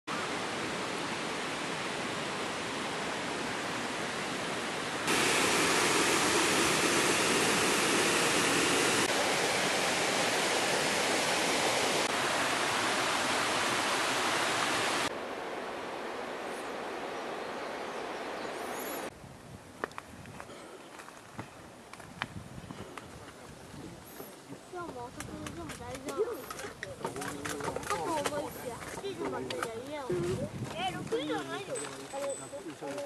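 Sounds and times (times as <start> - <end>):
mountain stream rushing: 0.1 - 19.1.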